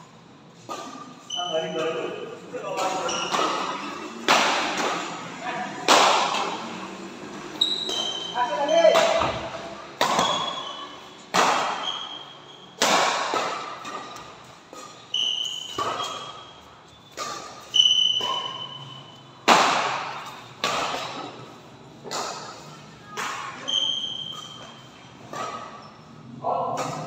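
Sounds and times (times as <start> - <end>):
shoes squeaking on court: 0.6 - 4.2, 7.5 - 12.8, 13.4 - 19.4, 20.1 - 26.3
rackets hitting shuttlecock: 2.6 - 6.7, 7.5 - 25.9, 26.7 - 27.0.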